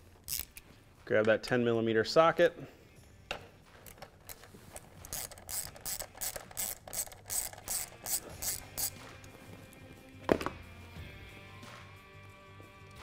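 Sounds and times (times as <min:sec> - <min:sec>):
ratchet wrench clicking: 0:00.2 - 0:00.6, 0:03.8 - 0:09.0.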